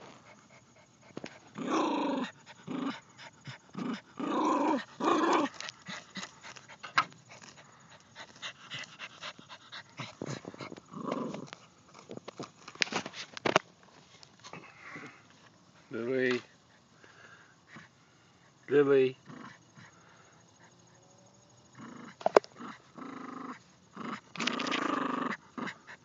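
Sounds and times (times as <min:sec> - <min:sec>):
paws scratching in dirt: 0:00.0 - 0:01.7, 0:04.6 - 0:16.5
dog growling: 0:00.0 - 0:11.7, 0:19.2 - 0:20.0, 0:21.7 - 0:26.0.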